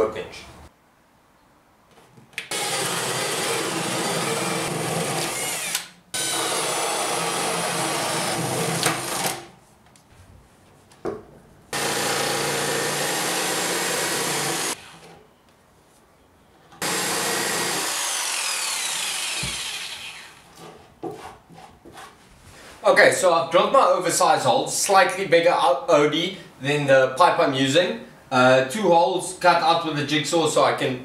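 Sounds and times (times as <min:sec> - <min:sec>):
drill boring through wood: 0:02.5 - 0:09.5, 0:11.8 - 0:15.1, 0:16.8 - 0:20.4.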